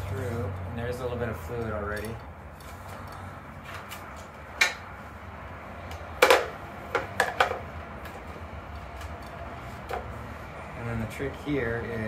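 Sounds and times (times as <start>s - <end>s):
hard parts knocking on scooter deck: 6.2s - 8.2s.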